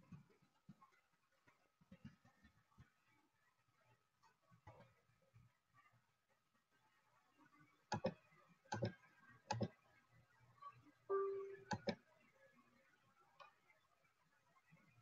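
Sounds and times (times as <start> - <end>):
short steady tone: 11.1 - 11.8.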